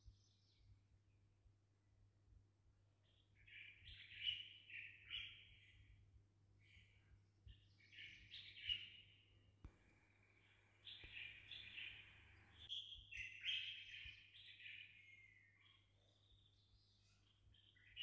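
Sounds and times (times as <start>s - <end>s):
faint high bird chirping: 3.0s - 6.0s, 6.6s - 18.0s.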